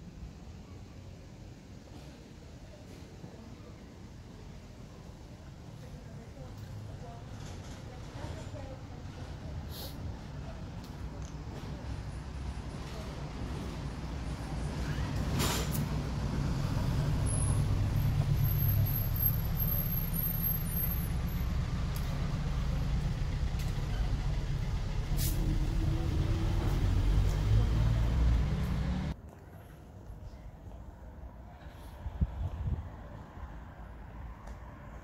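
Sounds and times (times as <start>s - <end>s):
vehicle engine rumbling: 6.2s - 29.2s.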